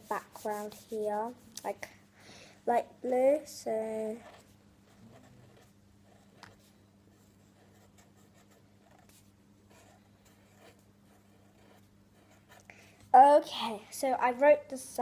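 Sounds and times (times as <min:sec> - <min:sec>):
marker scratching on paper: 0:00.0 - 0:01.8, 0:04.0 - 0:12.7
low steady hum: 0:00.0 - 0:15.0.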